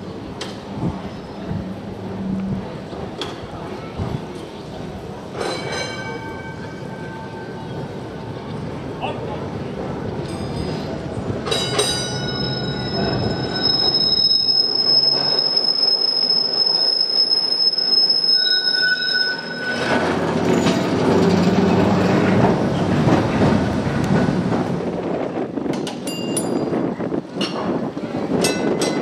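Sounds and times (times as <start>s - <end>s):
tram wheels rumbling and clattering: 0.0s - 29.0s
tram wheels squealing: 10.0s - 24.5s.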